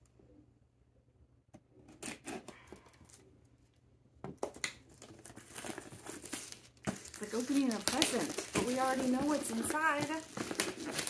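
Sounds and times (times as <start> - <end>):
plastic crinkling: 4.4 - 11.0
scissors snipping plastic: 5.5 - 11.0.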